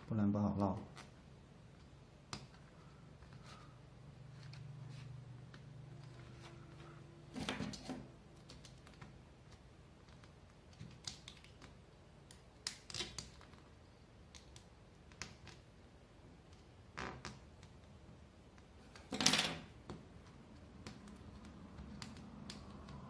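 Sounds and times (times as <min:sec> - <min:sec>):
thread clicks and taps on nails: 0:19.8 - 0:23.0.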